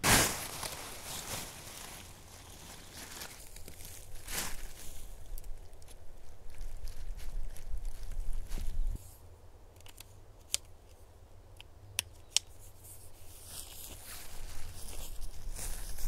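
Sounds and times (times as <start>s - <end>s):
gear and fabric rustling: 0.0s - 9.0s.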